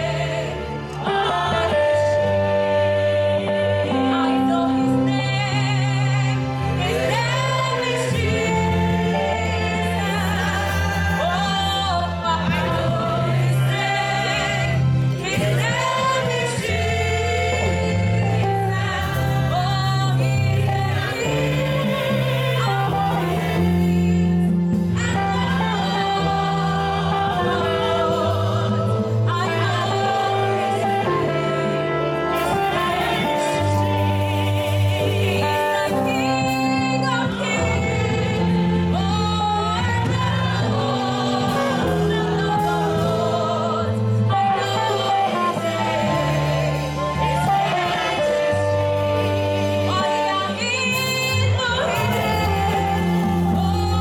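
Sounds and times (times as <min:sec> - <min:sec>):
choir singing gospel: 0:00.0 - 0:54.0
instrumental bass accompaniment: 0:00.0 - 0:54.0.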